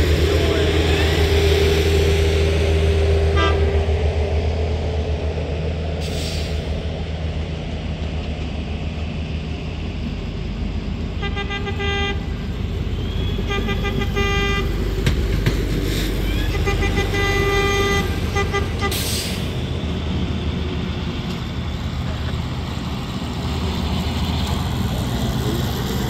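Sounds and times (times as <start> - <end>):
diesel engines rumbling: 0.0 - 26.0
horn toots: 3.3 - 3.9, 11.2 - 12.3, 13.4 - 14.7, 16.3 - 19.3.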